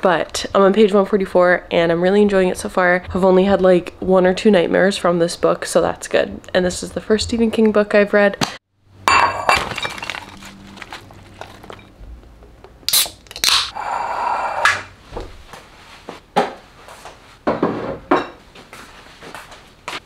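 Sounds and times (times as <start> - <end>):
dishes and utensils clattering: 9.1 - 11.9
plastic bag rustling: 9.5 - 11.9.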